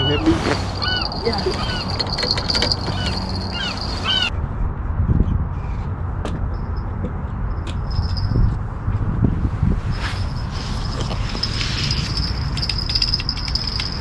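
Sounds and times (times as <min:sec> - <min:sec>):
gulls calling: 0:00.0 - 0:04.3.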